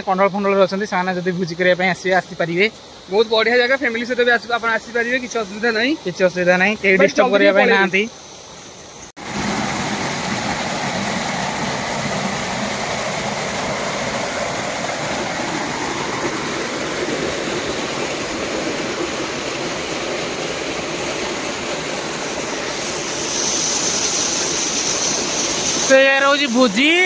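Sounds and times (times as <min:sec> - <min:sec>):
waterfall splashing over rocks: 0:09.2 - 0:27.0.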